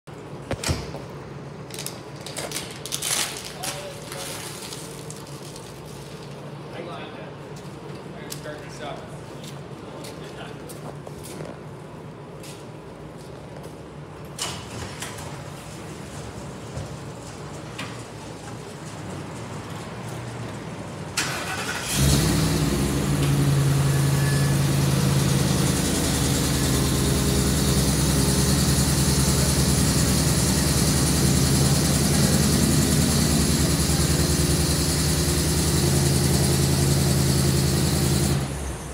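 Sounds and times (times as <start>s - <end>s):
ambulance engine starting and idling: 14.2s - 38.9s.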